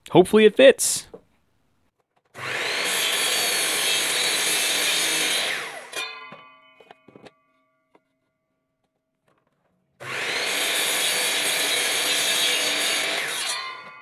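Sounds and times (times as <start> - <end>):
miter saw cutting wood: 2.4 - 6.4, 10.0 - 14.0.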